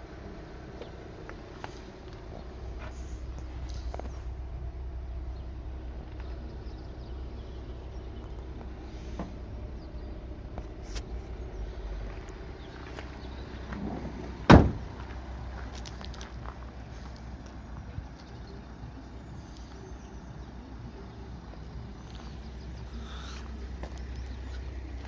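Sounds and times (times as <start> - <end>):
low rumble: 0.0 - 25.0
door bang: 13.8 - 14.9.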